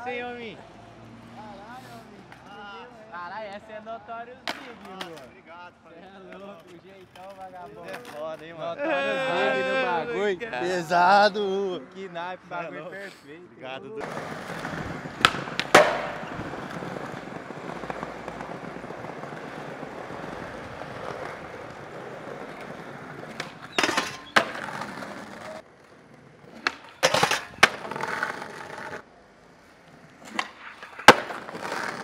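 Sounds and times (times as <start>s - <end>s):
skateboard wheels rolling on stone: 6.3s - 8.5s, 14.0s - 32.0s
skateboard clacks and landings: 14.0s - 25.6s, 26.5s - 29.0s, 30.2s - 32.0s.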